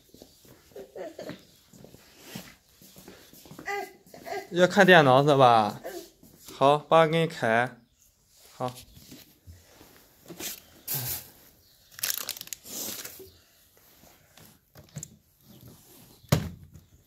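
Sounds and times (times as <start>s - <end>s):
rustling and crinkling: 0.0s - 4.4s, 8.2s - 17.0s.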